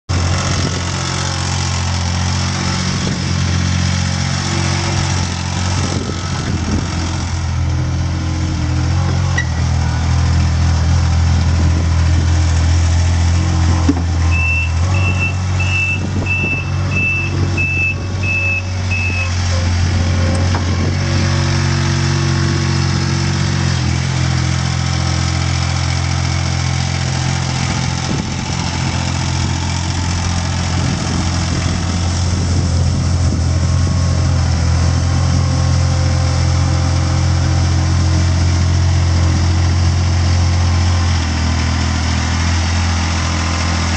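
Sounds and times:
diesel engine running: 0.1s - 43.9s
reversing alarm beeps: 14.3s - 19.3s.

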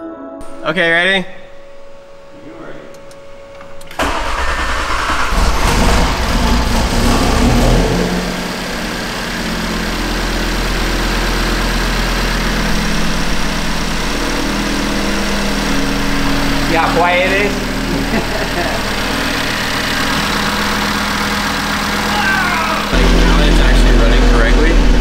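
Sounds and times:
car engine starting and idling: 0.4s - 25.0s.

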